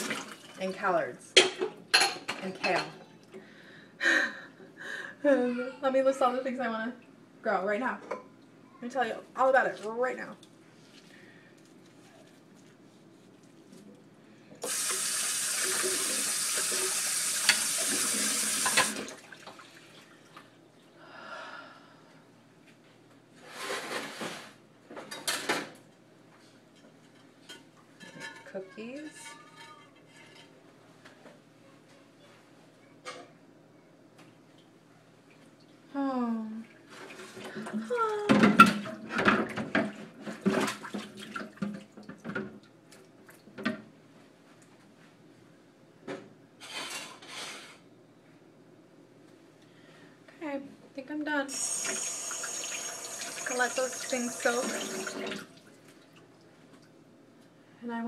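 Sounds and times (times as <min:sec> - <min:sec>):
water splashing in a sink: 0:00.0 - 0:00.7, 0:14.6 - 0:20.3, 0:38.7 - 0:42.4, 0:51.6 - 0:56.5
tap running into sink: 0:14.6 - 0:19.0.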